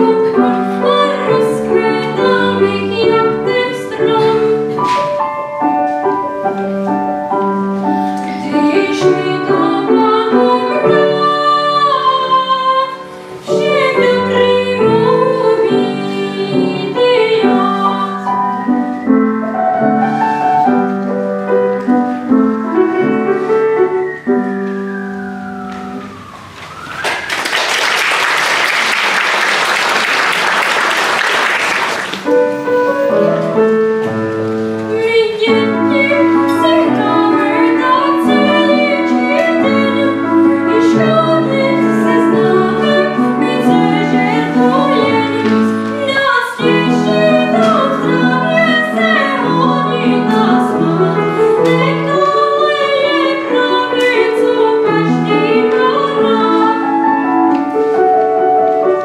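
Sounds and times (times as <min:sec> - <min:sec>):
piano accompaniment: 0:00.0 - 0:59.0
person singing: 0:08.1 - 0:18.4, 0:34.9 - 0:57.3
audience applause: 0:26.5 - 0:32.8.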